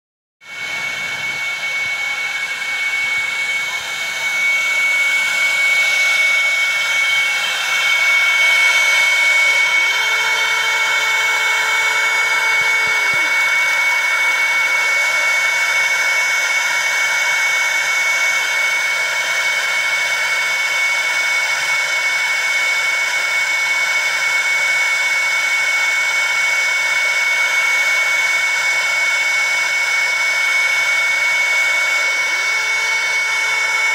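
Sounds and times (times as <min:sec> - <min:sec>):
constant high whine: 0:00.5 - 0:19.8
laser engraver whirring: 0:00.5 - 0:24.5, 0:25.2 - 0:33.9.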